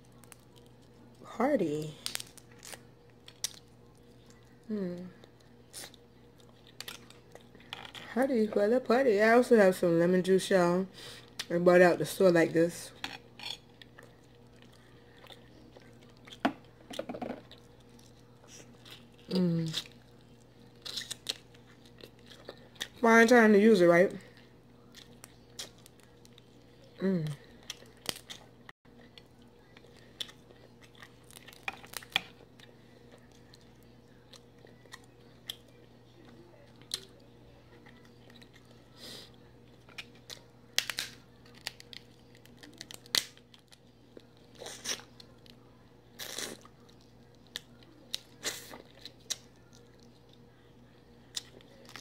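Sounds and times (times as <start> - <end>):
crab shells cracking: 2.0 - 3.8, 20.7 - 23.0, 27.7 - 28.4, 39.8 - 44.2
biting and chewing: 13.0 - 23.0.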